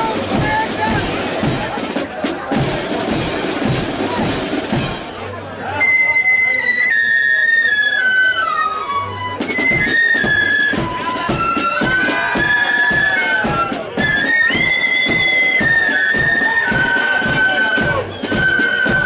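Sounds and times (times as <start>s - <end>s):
bass drum and side drums: 0.0s - 5.3s
flutes playing melody: 5.6s - 19.0s.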